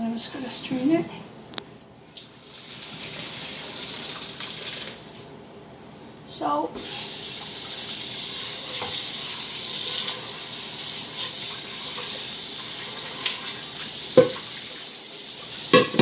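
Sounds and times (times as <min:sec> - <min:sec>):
tap water running into a pot: 0:02.2 - 0:05.3, 0:06.8 - 0:16.0.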